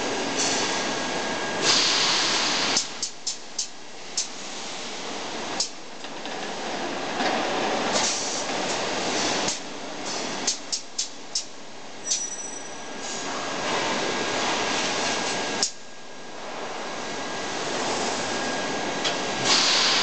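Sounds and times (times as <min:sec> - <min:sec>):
welding machine hiss: 0:01.6 - 0:04.4, 0:19.4 - 0:20.0.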